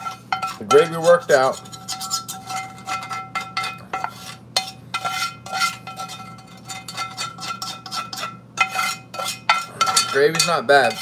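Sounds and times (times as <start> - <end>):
metal utensil scraping a skillet: 0.0 - 11.0.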